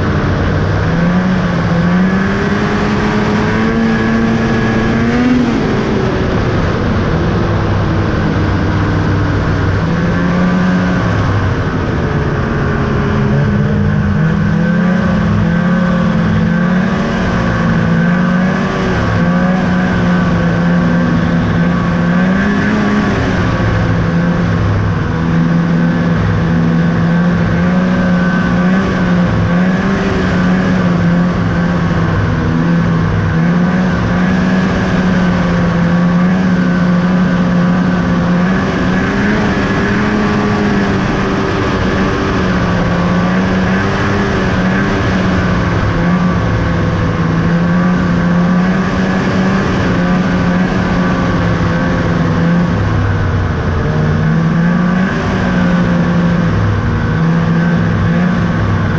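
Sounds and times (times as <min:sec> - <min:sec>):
snowmobile engine running hard: 0:00.0 - 0:58.9.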